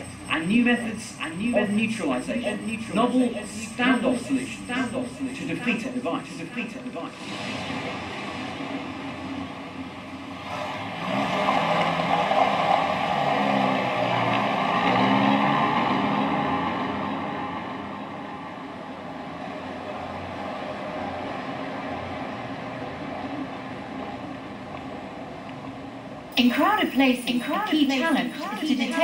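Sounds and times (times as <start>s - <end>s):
armoured vehicle engine driving by: 0.0s - 26.0s.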